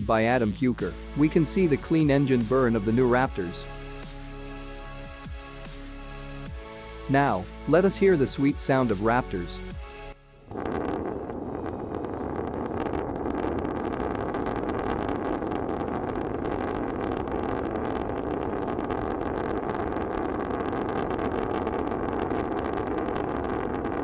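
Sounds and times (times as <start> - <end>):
rocket engine firing: 10.5 - 24.0.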